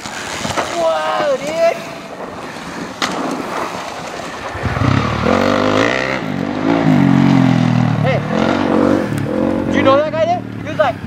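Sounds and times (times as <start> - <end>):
dirt bike engine revving: 4.2 - 11.0.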